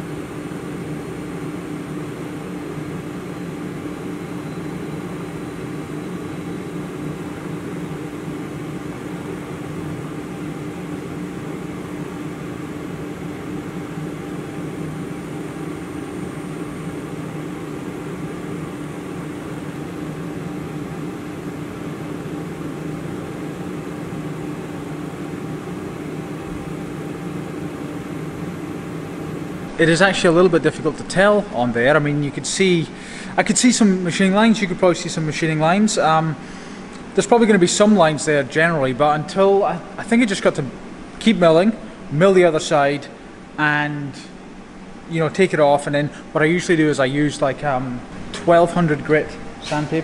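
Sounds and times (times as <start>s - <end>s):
milling machine idling hum: 0.0s - 38.3s.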